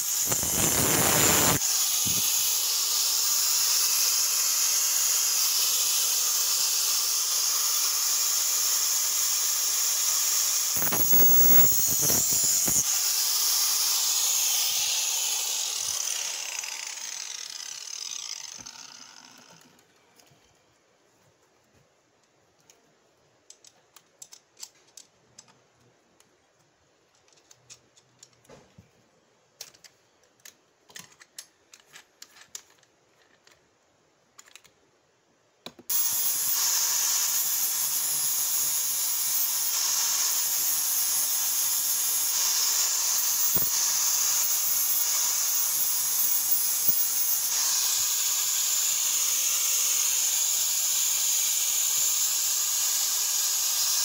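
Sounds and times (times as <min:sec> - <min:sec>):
angle grinder grinding steel: 0:00.0 - 0:19.8, 0:35.9 - 0:54.0
metal clicks and taps: 0:23.5 - 0:25.6.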